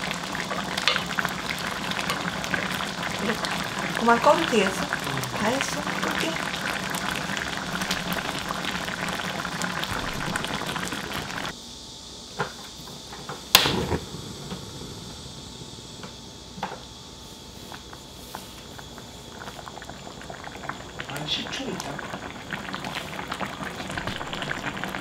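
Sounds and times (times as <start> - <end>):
sauce bubbling and popping: 0.0 - 11.5, 18.7 - 25.0
quiet hiss: 0.0 - 25.0.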